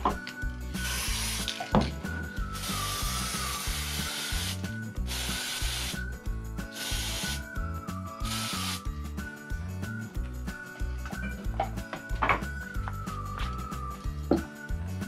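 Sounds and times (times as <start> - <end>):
aerosol spray can hissing: 0.8 - 1.7, 2.4 - 8.9.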